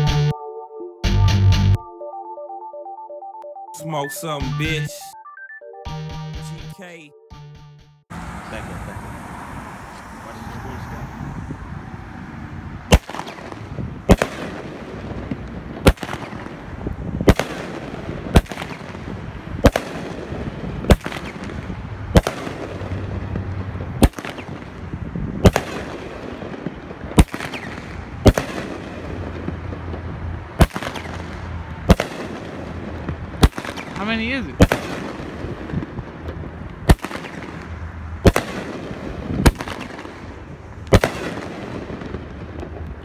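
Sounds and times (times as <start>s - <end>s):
fireworks bangs: 12.9s - 43.0s.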